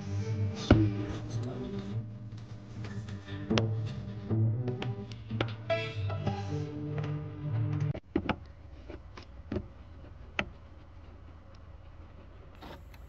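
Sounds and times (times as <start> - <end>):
music: 0.0 - 8.0.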